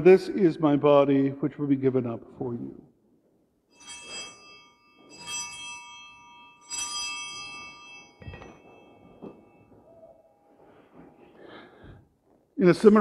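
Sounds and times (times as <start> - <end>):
altar bells jingling: 3.7 - 12.0.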